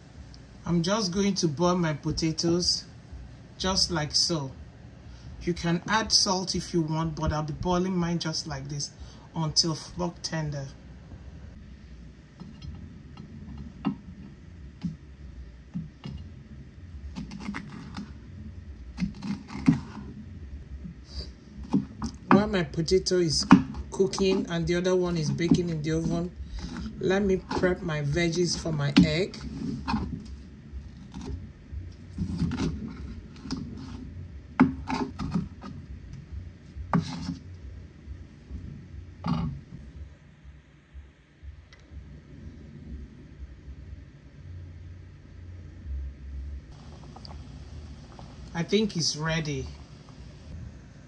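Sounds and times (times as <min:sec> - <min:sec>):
knife chopping on cutting board: 0:21.6 - 0:22.5, 0:23.3 - 0:24.5
knife chopping on plastic board: 0:21.6 - 0:22.5, 0:23.3 - 0:27.7.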